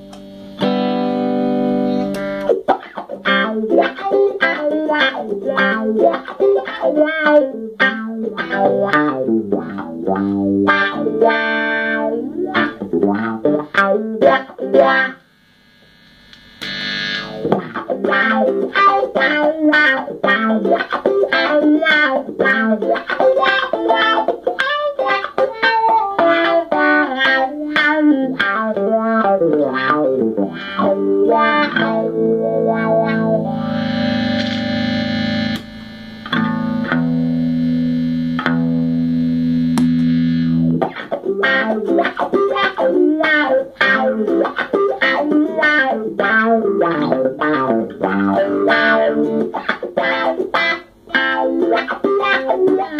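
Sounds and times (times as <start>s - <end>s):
electric guitar playing: 0.0s - 52.9s.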